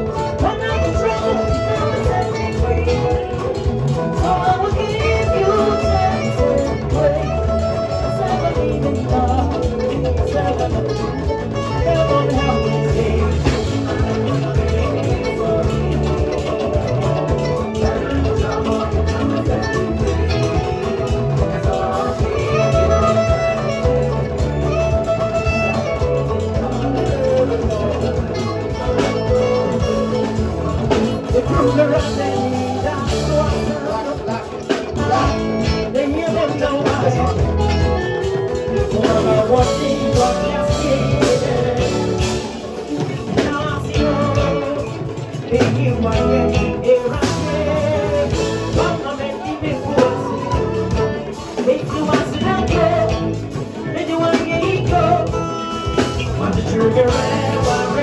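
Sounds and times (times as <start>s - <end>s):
live band playing: 0.0s - 58.0s
woman singing through microphone: 0.0s - 58.0s.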